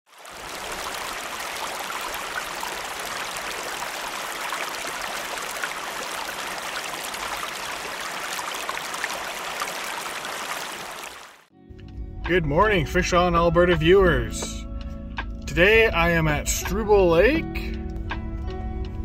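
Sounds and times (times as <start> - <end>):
stream water babbling over stones: 0.1 - 11.5.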